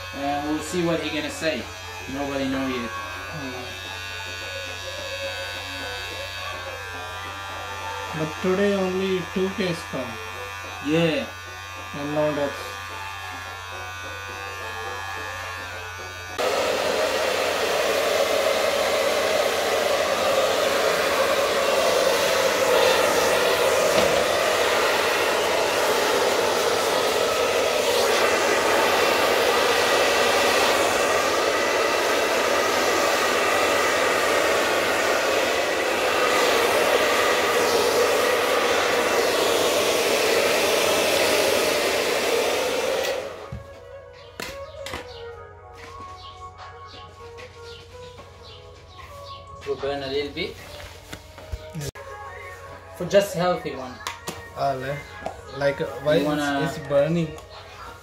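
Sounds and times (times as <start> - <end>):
electric hair clipper buzzing: 0.0 - 43.6
hair dryer blowing: 0.0 - 43.7, 53.2 - 57.5.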